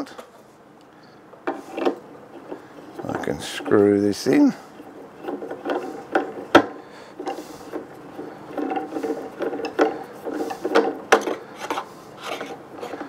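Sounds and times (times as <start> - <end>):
wooden screw squeaking and creaking: 7.2 - 13.0.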